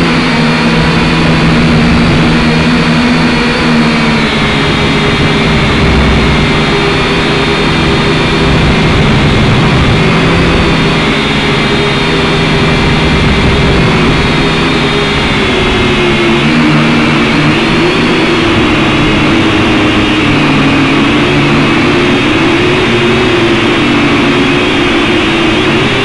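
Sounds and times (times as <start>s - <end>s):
drone propellers whining: 0.0s - 26.0s.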